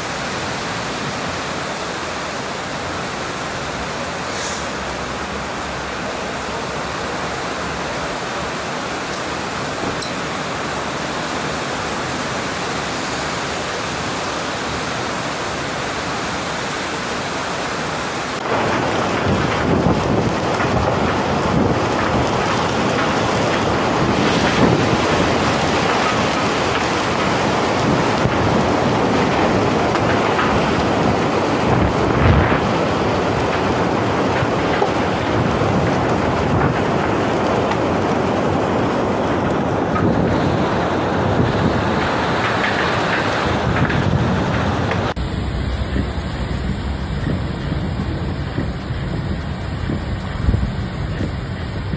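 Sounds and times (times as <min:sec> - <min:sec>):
heavy rain pouring: 0:00.0 - 0:51.9
wind gusts buffeting microphone: 0:00.0 - 0:51.9.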